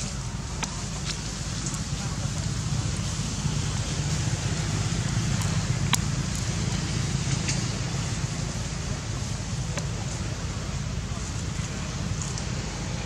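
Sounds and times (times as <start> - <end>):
faint sharp clicks: 11.6 - 12.5.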